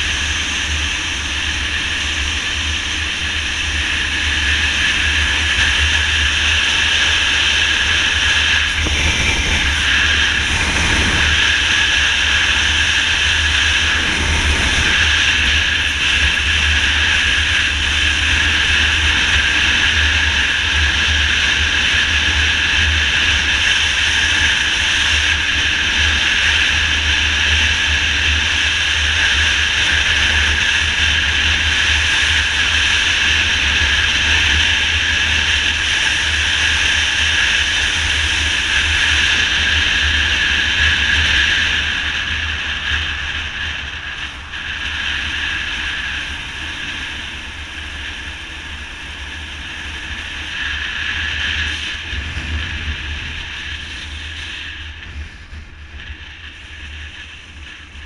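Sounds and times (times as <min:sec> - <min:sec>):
low rumble: 0:00.0 - 0:18.5, 0:33.4 - 0:58.0
motorcycle road noise: 0:00.0 - 0:58.0
wind rush: 0:00.0 - 0:58.0.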